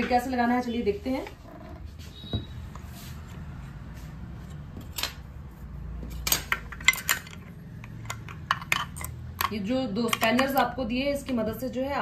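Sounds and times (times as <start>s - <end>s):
metal tools clinking: 4.8s - 5.3s, 6.1s - 9.6s.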